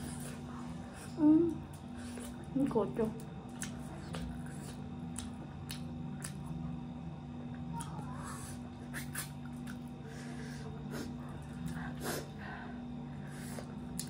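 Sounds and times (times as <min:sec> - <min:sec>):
steady low hum: 0:00.0 - 0:14.0
wet chewing: 0:03.3 - 0:06.8, 0:07.4 - 0:10.1, 0:13.6 - 0:14.0.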